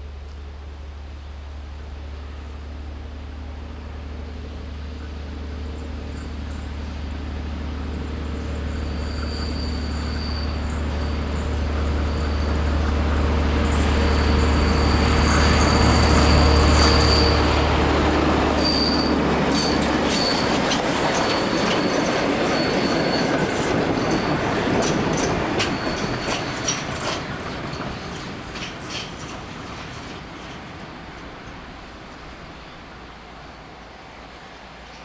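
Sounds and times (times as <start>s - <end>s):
diesel locomotive drone: 0.0s - 35.0s
high wheel squeal: 5.7s - 29.4s
wheels clicking over rail joints: 18.5s - 31.8s.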